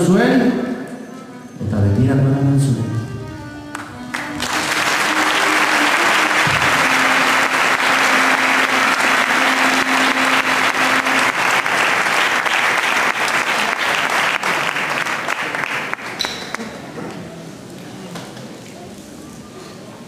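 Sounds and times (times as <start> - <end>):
faint music: 0.0 - 11.7
audience clapping: 3.7 - 16.7.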